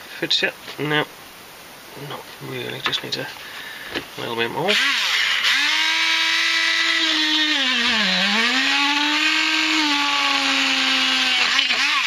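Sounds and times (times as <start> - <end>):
rotary tool high whine: 4.6 - 12.0.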